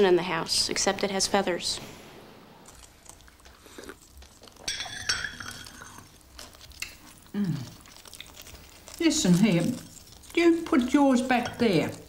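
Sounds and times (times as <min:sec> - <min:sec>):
teacup and saucer clinking: 0:04.7 - 0:06.0.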